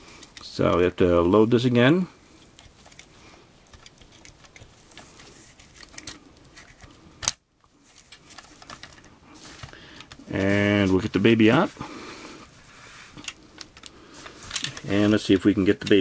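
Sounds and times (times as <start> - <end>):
plastic parts clicking: 2.4 - 7.4, 13.2 - 14.9.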